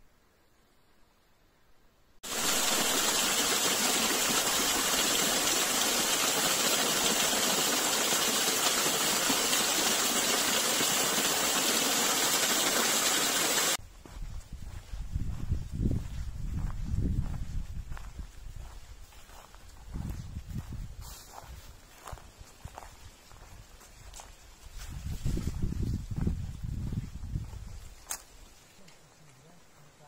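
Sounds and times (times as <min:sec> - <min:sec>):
stream water rushing: 0:02.2 - 0:13.8.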